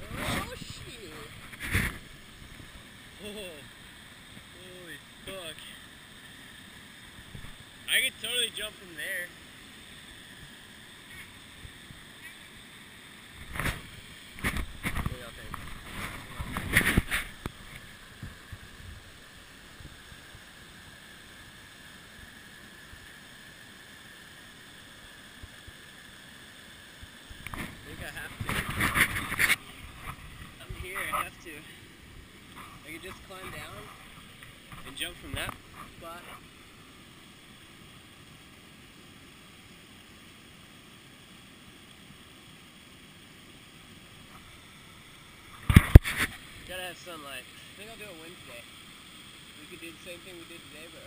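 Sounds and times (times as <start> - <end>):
waterfall rushing: 0.0 - 5.9, 7.1 - 9.5
wind bumps on microphone: 1.3 - 2.0, 14.4 - 17.3, 27.5 - 30.9.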